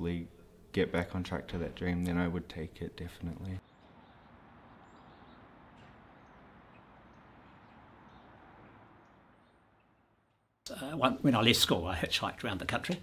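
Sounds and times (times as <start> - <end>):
distant bird chirps: 3.6 - 10.6.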